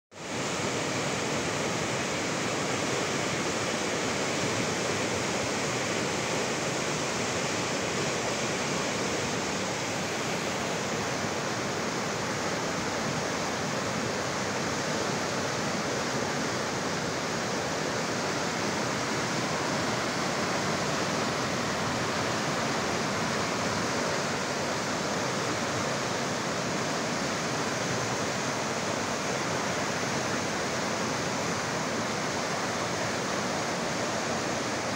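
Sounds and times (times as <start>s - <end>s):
river rushing over boulders: 0.2s - 34.9s.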